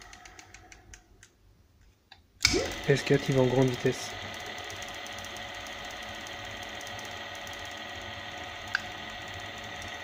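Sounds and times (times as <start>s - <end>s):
electric motor whining: 2.5s - 10.0s.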